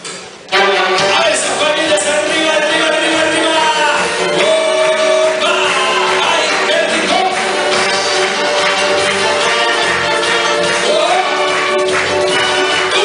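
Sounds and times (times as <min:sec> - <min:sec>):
big band playing: 0:00.0 - 0:13.0
men singing: 0:00.8 - 0:07.8, 0:10.7 - 0:13.0.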